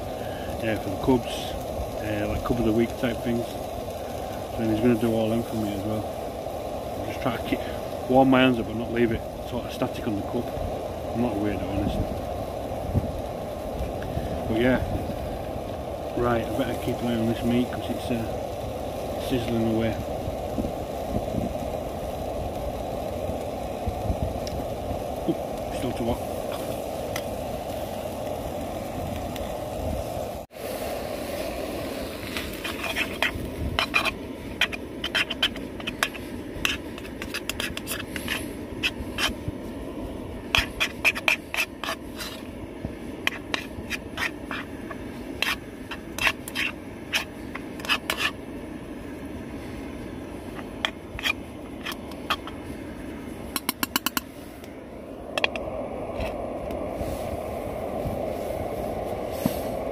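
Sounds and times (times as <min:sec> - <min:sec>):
meat sizzling: 0:00.0 - 0:59.9
spoon scraping metal frying pan: 0:32.4 - 0:39.4, 0:45.4 - 0:48.4.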